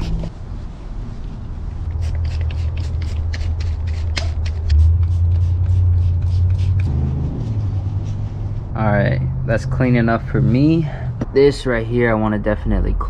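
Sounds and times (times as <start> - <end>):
rag rubbing on metal: 1.9 - 8.4
low rumble: 4.6 - 13.0.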